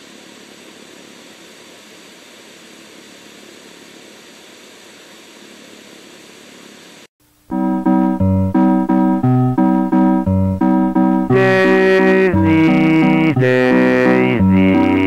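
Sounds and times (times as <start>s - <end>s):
loud brass music: 11.0s - 15.0s.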